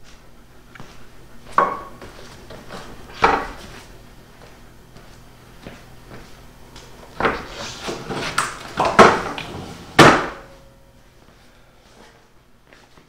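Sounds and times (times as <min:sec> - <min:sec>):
loud thump on concrete floor: 0:10.0 - 0:10.6.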